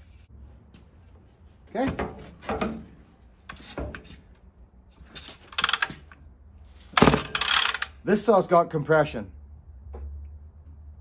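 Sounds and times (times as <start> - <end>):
chainsaw recoil starter pulls: 5.2 - 6.1, 6.8 - 8.0
engine turning over: 7.0 - 7.9.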